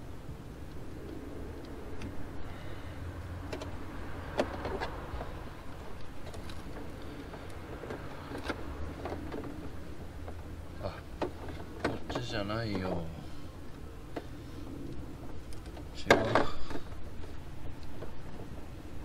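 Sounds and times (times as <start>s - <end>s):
hoses clicking and knocking: 3.4s - 13.0s.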